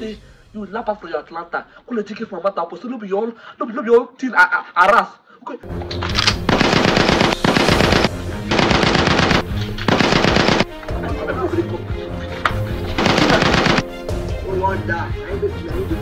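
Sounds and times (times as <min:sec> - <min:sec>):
background music: 0:00.0 - 0:02.7, 0:05.6 - 0:16.0
automatic gunfire bursts: 0:06.5 - 0:10.7, 0:13.0 - 0:13.9.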